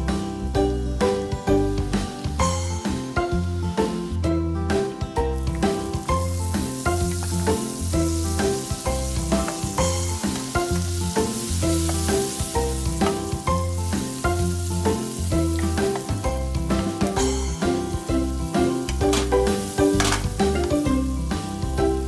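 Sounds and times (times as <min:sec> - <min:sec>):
background music with bass line: 0:00.0 - 0:22.0
butter sizzling in a frying pan: 0:05.4 - 0:22.0.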